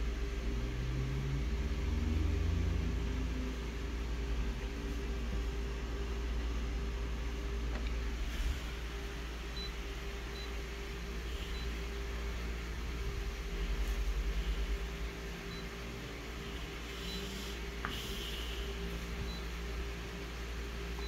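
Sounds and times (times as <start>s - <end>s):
copier humming with fan: 0.0s - 21.0s
faint high touchscreen beeps: 11.3s - 11.8s, 15.5s - 15.7s, 16.9s - 17.6s.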